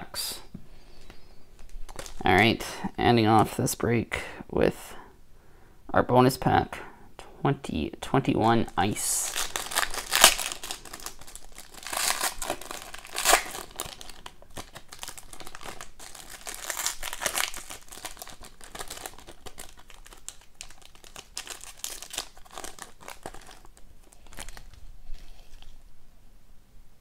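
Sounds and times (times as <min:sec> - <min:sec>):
foil wrapper crinkling and tearing: 0:01.6 - 0:02.4, 0:08.7 - 0:25.8.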